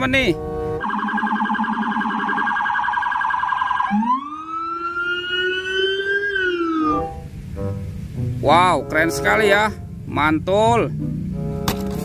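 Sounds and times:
electronic police siren: 0.7 - 7.2.

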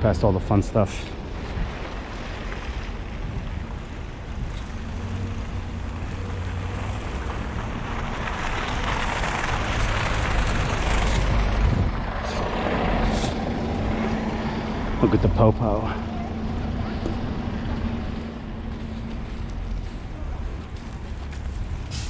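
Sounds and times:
bus engine humming: 0.0 - 22.0.

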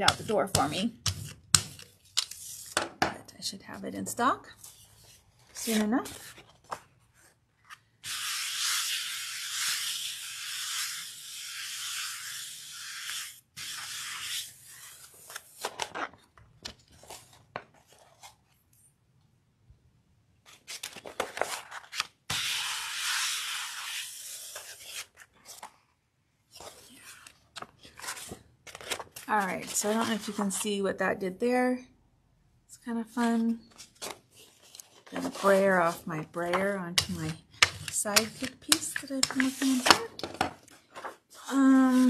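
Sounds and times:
paper rustling and peeling: 20.5 - 22.2, 26.5 - 30.6, 33.7 - 42.0.

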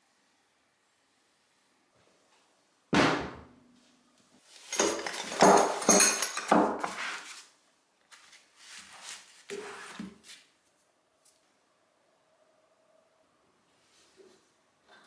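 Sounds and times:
spanners clinking together: 4.7 - 6.7.

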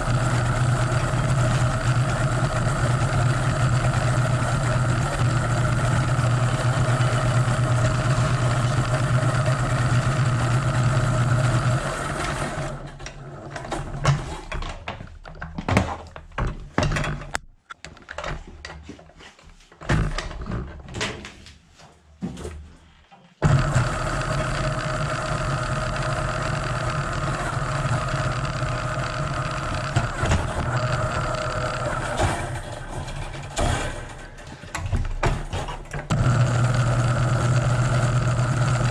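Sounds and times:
electric motor running: 0.0 - 12.8, 23.4 - 32.4, 36.1 - 38.9
knocks and clatter: 12.8 - 19.1, 31.7 - 36.1.

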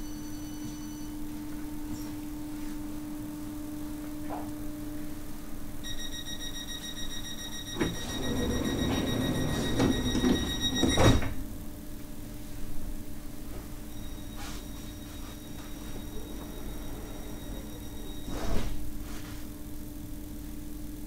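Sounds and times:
high steady warning tone: 5.8 - 11.4, 13.8 - 18.6
low carriage hum: 7.6 - 13.8, 15.6 - 20.1
sliding doors running shut: 7.7 - 11.5, 16.2 - 18.8.

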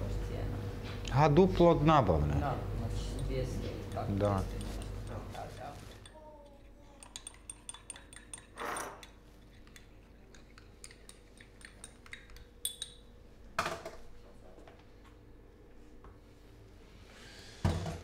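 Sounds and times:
metal utensils and cups clinking: 7.0 - 13.0.

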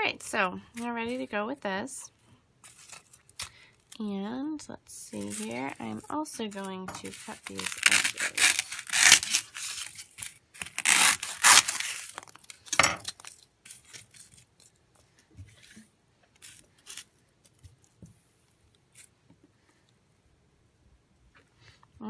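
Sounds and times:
knife sawing through foam: 7.0 - 12.1.

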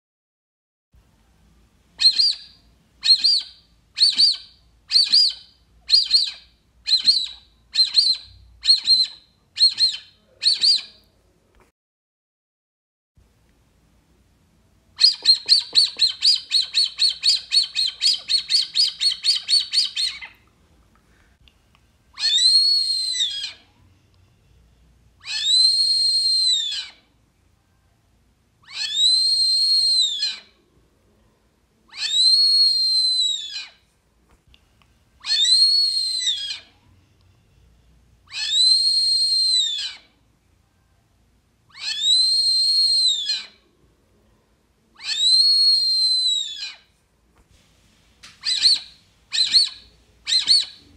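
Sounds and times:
duck call whistles: 22.2 - 23.6, 35.2 - 36.6, 45.0 - 46.7, 48.4 - 50.8.

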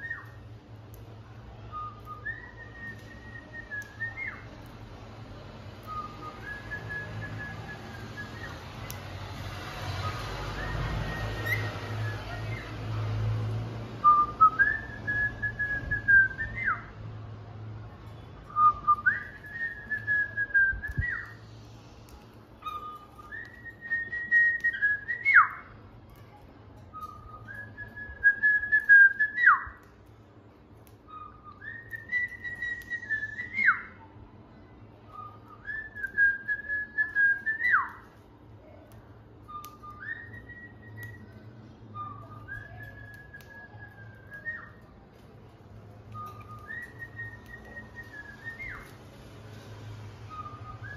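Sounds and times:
cockatiel whistling a tune: 0.0 - 0.4, 1.7 - 4.6, 5.8 - 9.0, 10.0 - 12.8, 14.0 - 16.9, 18.4 - 21.4, 22.6 - 25.7, 26.9 - 29.9, 31.0 - 34.0, 35.1 - 38.2, 39.4 - 44.9, 46.1 - 49.1, 50.2 - 50.9.

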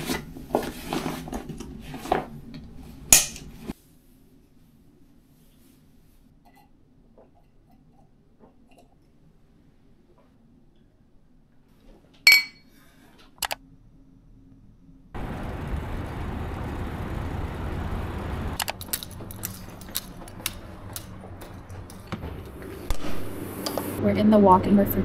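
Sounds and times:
drinking glass clinking: 12.3 - 12.6
bicycle riding rushing noise: 15.2 - 25.0.

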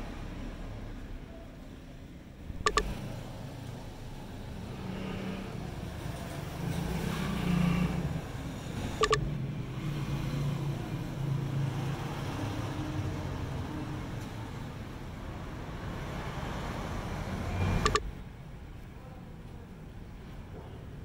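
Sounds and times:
short sharp clicks: 2.6 - 3.0, 9.0 - 9.3, 17.8 - 18.1.

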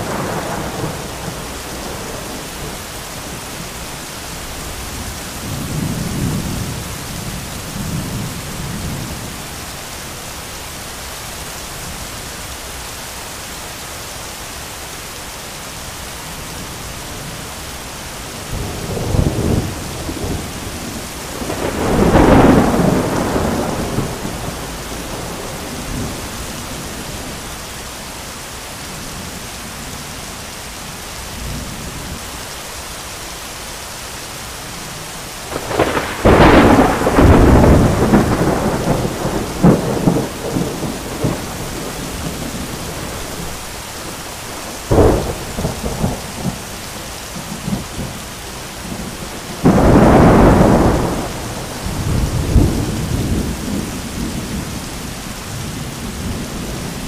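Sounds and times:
thunder cracks and rumbles: 0.0 - 3.6, 18.5 - 27.4, 35.5 - 46.7, 48.8 - 54.8
heavy rain pouring: 0.0 - 57.0.

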